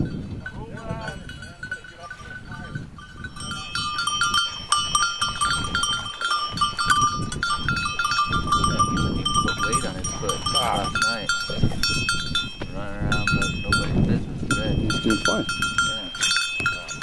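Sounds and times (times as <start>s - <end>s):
collar bells jingling: 0.0s - 17.0s.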